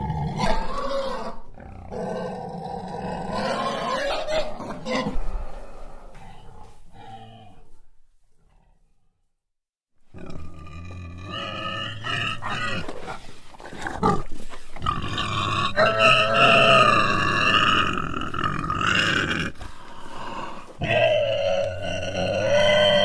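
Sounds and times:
animal squealing and grunting: 0.0 - 5.3, 10.2 - 23.0.

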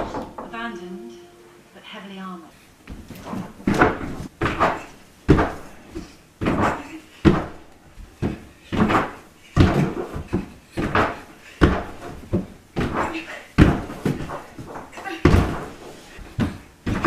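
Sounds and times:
thumps on inflatable mat: 2.9 - 5.8, 8.2 - 17.0.

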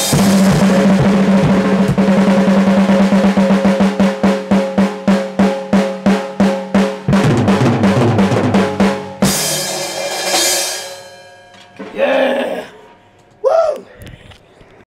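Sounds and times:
drum roll: 0.0 - 11.2
tom drum strikes: 0.0 - 11.2
cymbal crash: 9.1 - 11.4
short vocal sound: 11.9 - 14.2.

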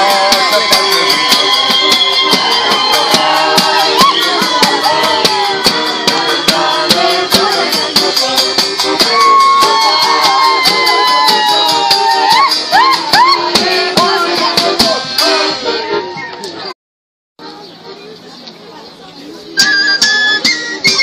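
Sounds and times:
bass drum with cymbal beat: 0.0 - 15.4
accordion melody: 0.0 - 16.2, 19.5 - 21.0
flute melody: 0.0 - 16.7, 19.6 - 21.0.

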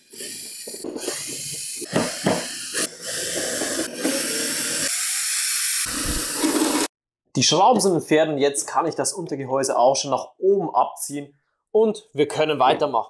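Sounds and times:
cordless drill running: 0.1 - 6.9.

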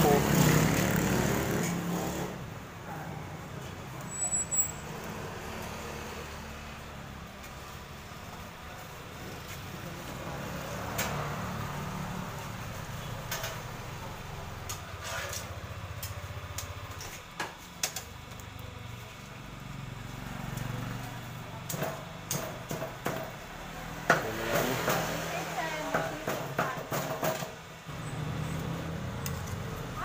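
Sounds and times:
sharp clicks and knocks: 14.6 - 18.6, 21.7 - 23.4.

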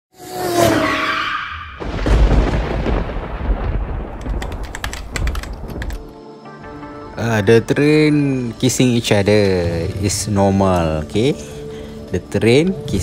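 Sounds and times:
deep rumbling boom: 1.8 - 4.6
sharp clicks: 4.2 - 6.1.

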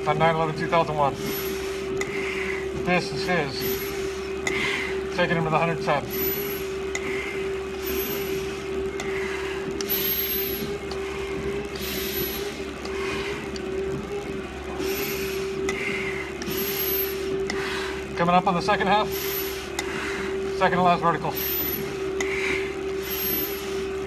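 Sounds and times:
steady hum: 0.0 - 24.0
heavy breathing through a respirator: 1.1 - 2.8, 3.6 - 5.1, 6.1 - 13.8, 14.7 - 18.2, 19.0 - 20.6, 21.3 - 24.0
mask valve squeak: 7.8 - 8.4, 21.3 - 21.8.

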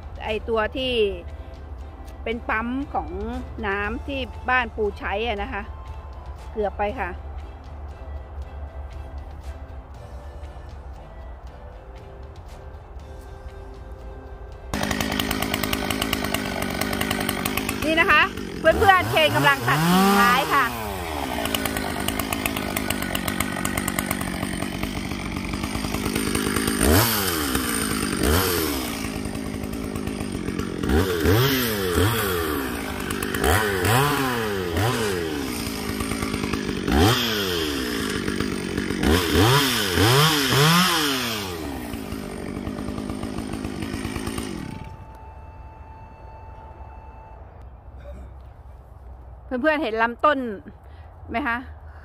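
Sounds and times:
chainsaw revving and cutting: 0.0 - 6.1, 14.7 - 45.3
faint outdoor background: 0.0 - 52.0.

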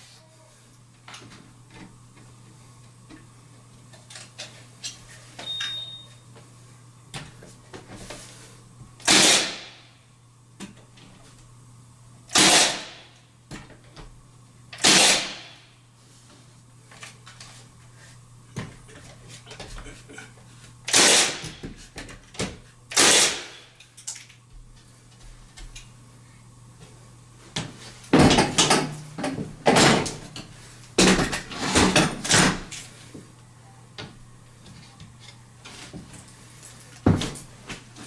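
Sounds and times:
nail gun firing into wood: 9.0 - 9.8, 12.3 - 13.1, 14.8 - 15.6, 20.9 - 21.6, 22.9 - 23.7.

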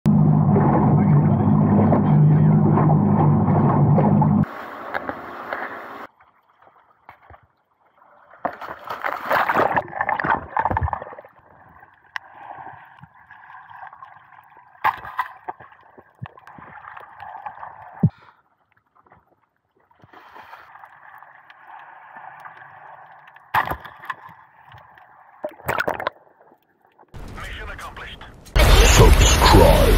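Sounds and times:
muffled underwater gurgling: 0.1 - 6.1, 28.6 - 29.9.

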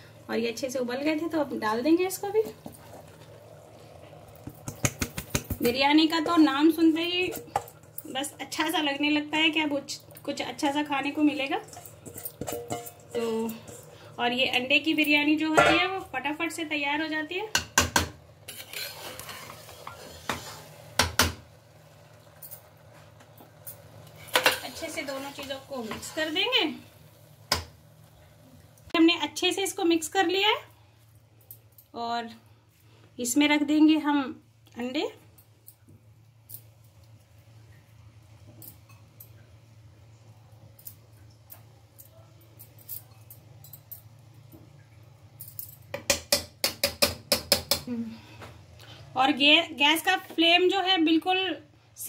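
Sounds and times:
low steady hum: 0.0 - 46.4
spatula clinking against pot: 11.7 - 13.8
spatula scraping rice: 18.5 - 20.9.

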